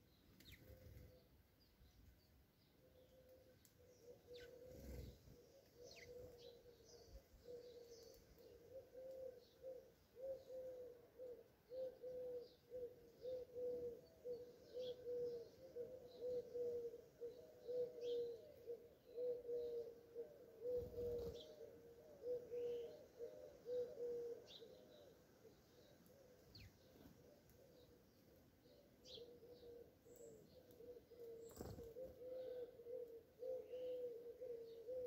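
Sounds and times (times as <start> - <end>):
sparrows chirping: 0.0 - 35.0
dove cooing: 3.0 - 35.0.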